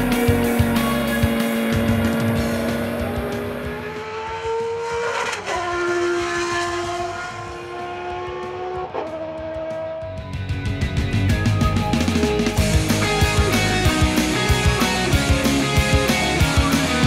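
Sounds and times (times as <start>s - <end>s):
racing car engine at high revs: 0.0s - 10.2s
abrupt gear changes: 0.0s - 17.0s.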